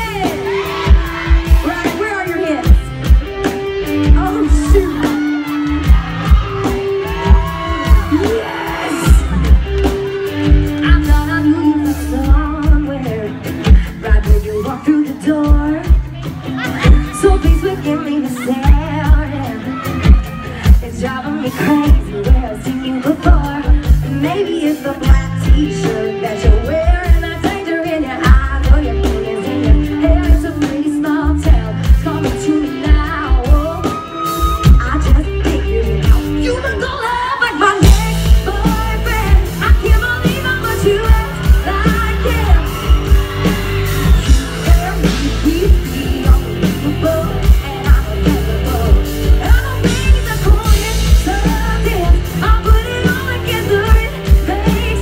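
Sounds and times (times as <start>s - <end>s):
live country-pop band: 0.0s - 55.0s
woman singing: 0.0s - 55.0s.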